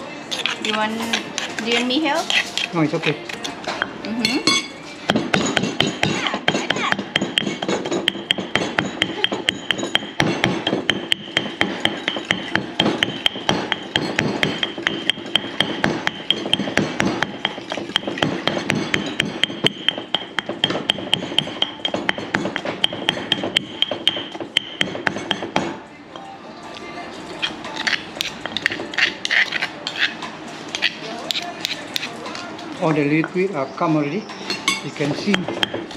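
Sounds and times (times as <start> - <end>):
stone pestle pounding in mortar: 0.3 - 25.8, 27.4 - 30.1, 30.7 - 32.1, 35.2 - 35.9.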